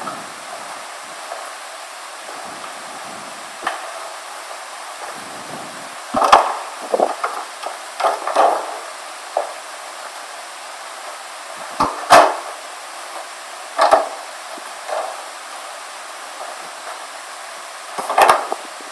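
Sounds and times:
room noise hiss: 0.0s - 18.9s
sharp knocks and clatters: 6.1s - 9.6s, 13.8s - 14.2s, 18.0s - 18.6s.

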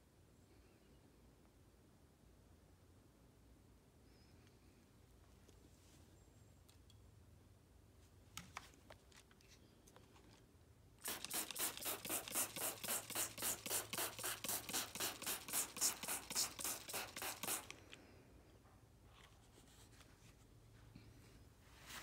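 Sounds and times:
spray bottle hissing sprays: 11.0s - 17.8s.

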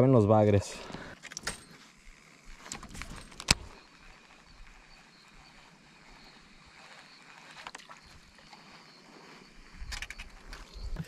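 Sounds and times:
faint outdoor hiss: 0.0s - 11.0s
fishing reel whir: 1.1s - 11.0s
sharp reel click: 9.7s - 10.8s.

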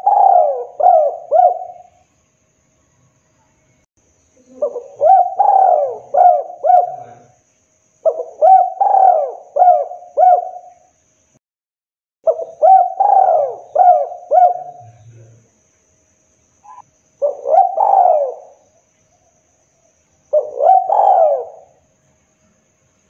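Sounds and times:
dove cooing: 0.0s - 2.0s, 4.4s - 7.4s, 8.0s - 10.8s, 12.3s - 15.3s, 16.7s - 18.6s, 20.3s - 21.8s.

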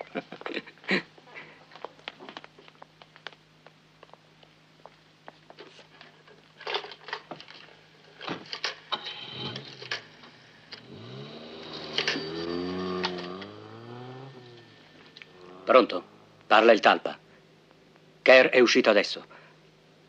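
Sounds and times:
rising tonal music cue: 10.9s - 16.4s.

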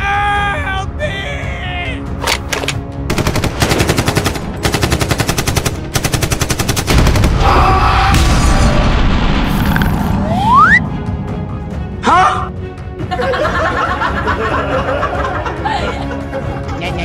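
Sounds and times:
machine gun automatic fire: 3.1s - 7.3s
rumbling explosion: 6.9s - 10.2s.

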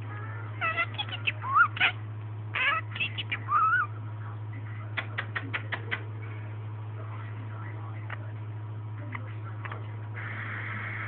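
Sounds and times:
steady low hum: 0.0s - 11.0s
budgerigar chattering: 0.6s - 3.9s.

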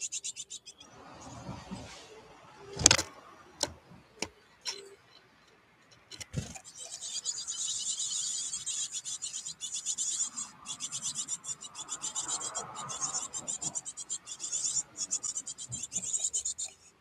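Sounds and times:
nestlings begging chatter: 0.0s - 0.9s, 6.4s - 17.0s.

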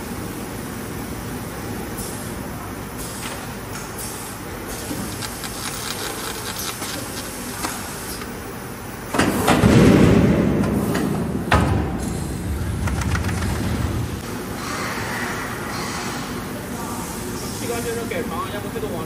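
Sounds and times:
loud rushing noise: 10.0s - 15.7s
machine running: 11.9s - 14.4s.

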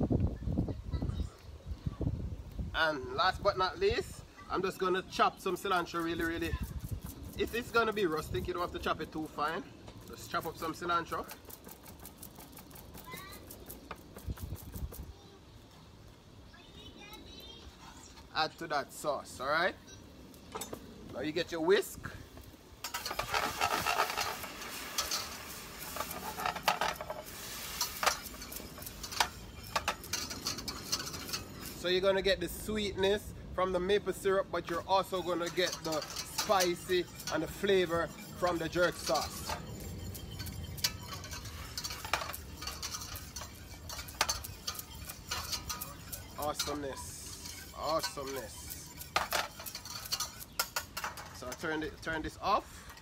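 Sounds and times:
wire whisk scraping metal pot: 5.4s - 9.5s, 10.1s - 14.9s, 22.8s - 53.0s.

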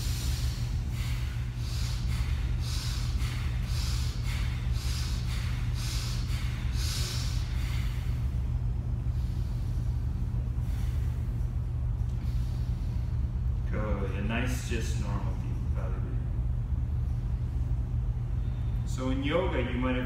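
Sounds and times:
rapid forceful nose breaths: 0.0s - 13.4s
air conditioner hum: 0.0s - 20.0s.

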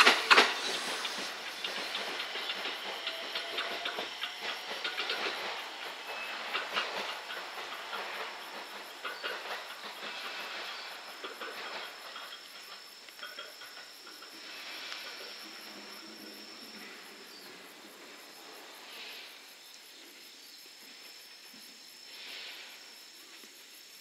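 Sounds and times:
electric train departing: 0.0s - 23.2s
insects droning: 0.0s - 24.0s.

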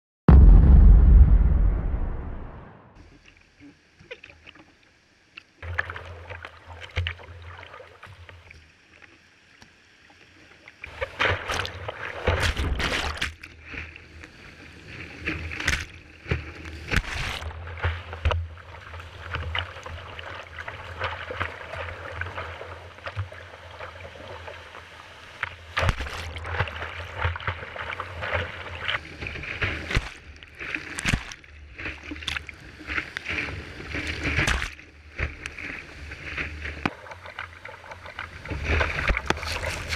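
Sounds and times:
waves slapping against kayak: 10.9s - 14.2s, 14.8s - 39.9s.

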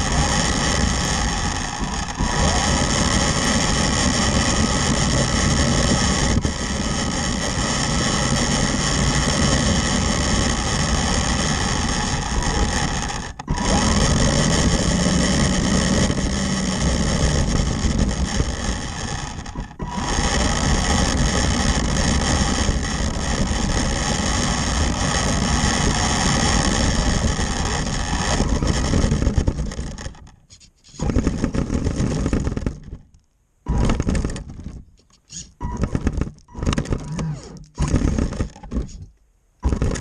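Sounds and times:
electric motor and gears whining: 0.0s - 40.0s
tyre and chassis rattle: 27.8s - 40.0s.

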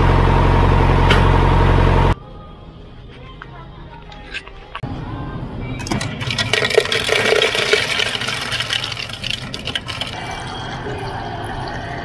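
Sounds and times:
ice cubes clattering into metal mug: 5.8s - 10.2s.

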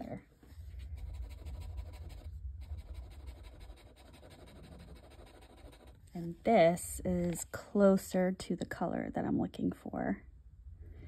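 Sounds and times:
scratching on paper: 0.0s - 6.4s
low rumble: 0.0s - 7.5s.

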